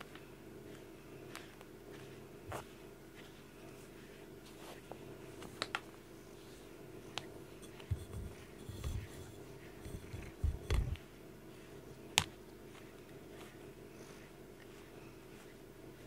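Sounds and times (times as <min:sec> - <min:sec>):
steady low hum: 0:00.0 - 0:16.0
cat bumping camera thumps: 0:09.8 - 0:11.0.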